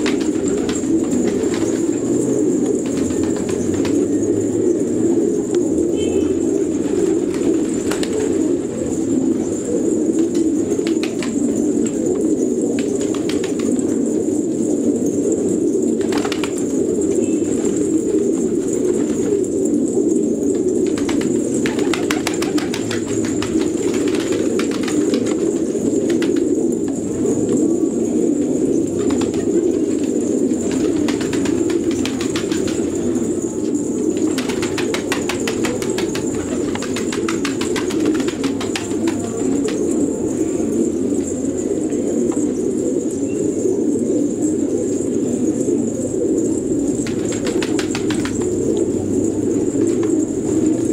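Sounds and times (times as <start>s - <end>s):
wings flapping: 0.0s - 4.2s, 6.8s - 8.6s, 10.2s - 12.0s, 12.7s - 14.0s, 16.0s - 16.8s, 20.8s - 26.6s, 29.0s - 33.3s, 34.1s - 40.0s, 46.9s - 48.8s
pigeons cooing: 0.0s - 50.9s
clicks of birds moving: 20.6s - 27.6s, 28.9s - 40.1s, 46.9s - 48.9s.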